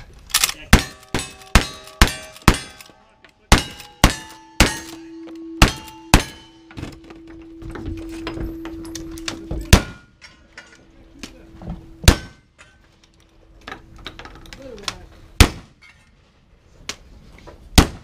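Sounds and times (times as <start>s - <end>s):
steel target ringing: 0.7s - 11.2s, 11.9s - 12.8s.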